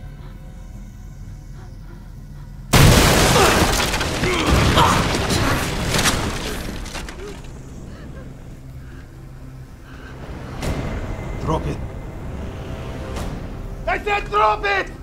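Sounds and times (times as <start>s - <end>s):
low music drone: 0.0s - 2.7s, 7.6s - 13.9s
wall being smashed through: 2.7s - 8.0s
debris clattering: 2.7s - 9.2s.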